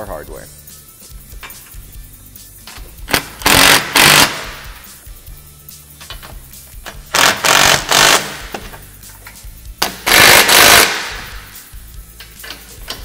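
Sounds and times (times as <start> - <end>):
impact tool rattling bursts: 3.1 - 4.8, 6.8 - 8.8, 9.8 - 11.5.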